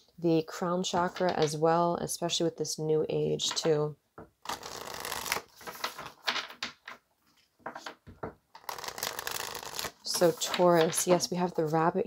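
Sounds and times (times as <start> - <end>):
cards being shuffled: 4.4 - 6.3, 7.8 - 11.2.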